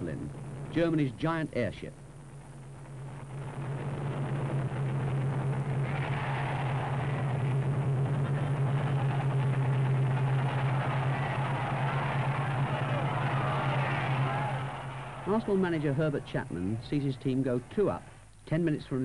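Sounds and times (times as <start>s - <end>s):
low engine-like drone: 2.9s - 17.7s
rushing noise: 3.3s - 17.4s.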